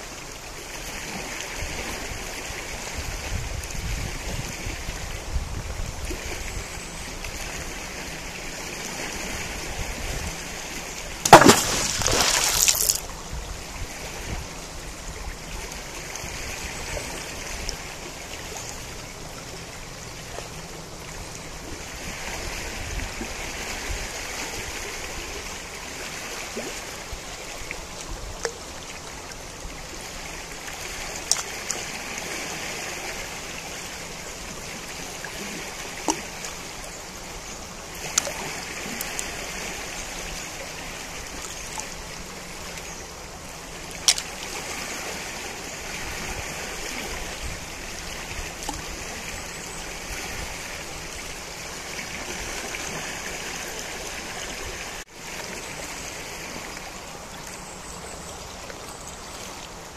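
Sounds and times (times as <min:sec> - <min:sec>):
river water rushing: 0:06.0 - 0:59.9.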